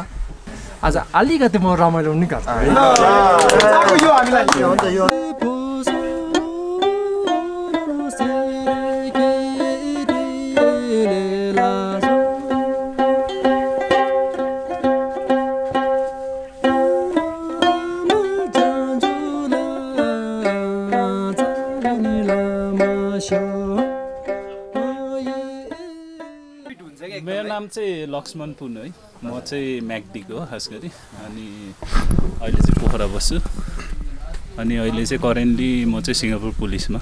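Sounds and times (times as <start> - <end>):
plucked string instrument melody: 2.6 - 27.6.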